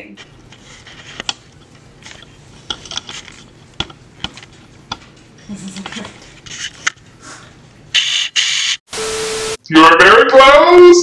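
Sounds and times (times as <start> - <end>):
brief low hum or giggle: 5.4 - 6.3.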